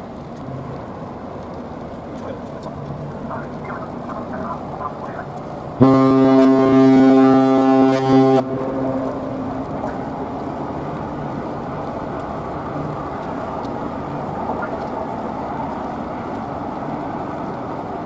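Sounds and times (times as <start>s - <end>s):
harbour background noise: 0.0s - 18.0s
ship's horn blast: 5.8s - 9.9s.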